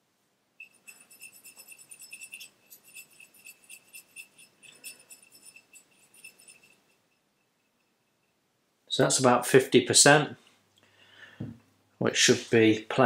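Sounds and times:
brush clinking in metal cup: 0:00.6 - 0:08.3.

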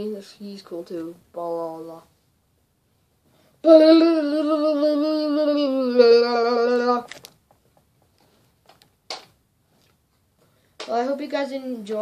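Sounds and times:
boy singing a long note: 0:03.6 - 0:07.1.

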